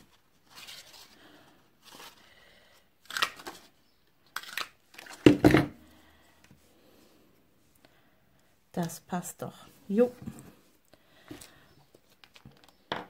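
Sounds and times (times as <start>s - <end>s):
paper rustling: 0.0s - 2.3s, 11.3s - 12.7s.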